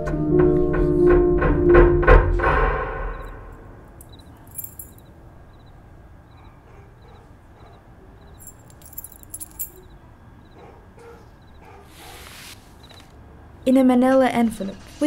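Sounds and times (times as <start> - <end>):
metallic jingling clicks: 4.0 - 5.1, 8.3 - 9.9.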